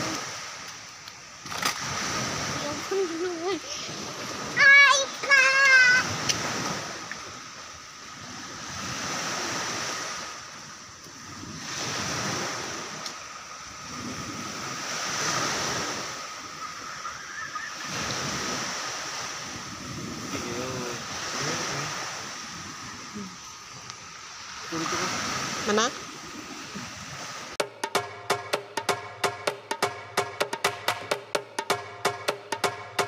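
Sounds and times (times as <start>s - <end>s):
sea waves washing on shore: 0.0s - 33.0s.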